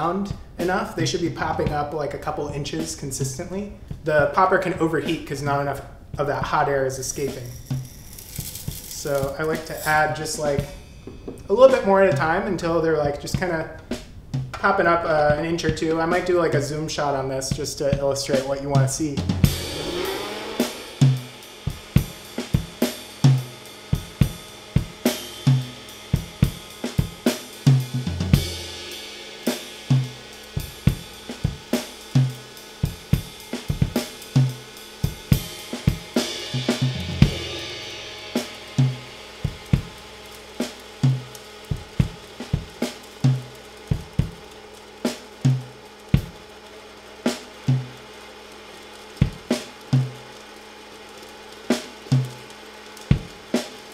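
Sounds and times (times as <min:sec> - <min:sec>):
drum kit steady beat: 0:00.0 - 0:53.9.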